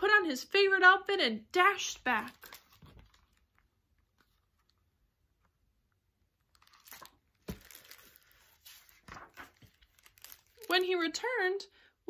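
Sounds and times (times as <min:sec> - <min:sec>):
paper rustling: 0:02.2 - 0:04.8, 0:06.5 - 0:10.9.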